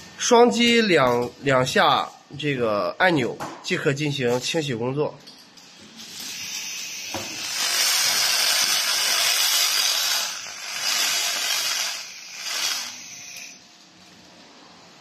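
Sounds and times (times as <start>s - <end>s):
laser cleaning hiss: 6.1s - 13.6s.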